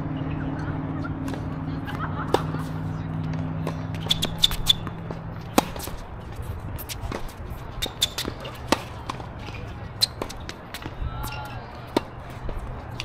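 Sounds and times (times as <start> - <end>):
tennis ball hit and bouncing: 1.2 - 13.0
shoe scuffs on court: 3.6 - 12.5.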